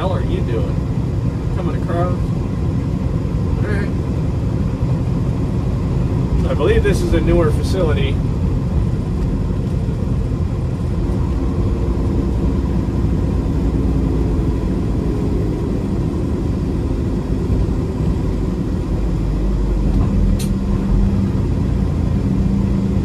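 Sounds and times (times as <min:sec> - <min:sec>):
diesel truck engine running: 0:00.0 - 0:23.0
sharp click: 0:20.4 - 0:20.6.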